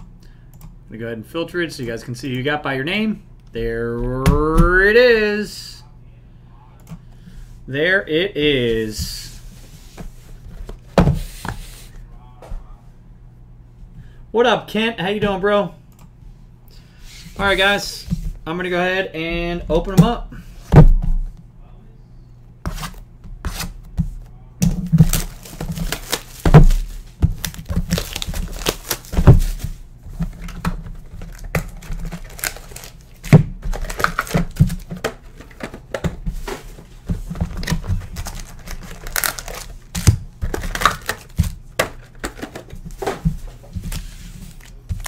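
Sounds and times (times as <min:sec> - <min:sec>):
plastic wrap crinkling and tearing: 0:25.0 - 0:29.6, 0:30.4 - 0:34.9, 0:37.6 - 0:41.6.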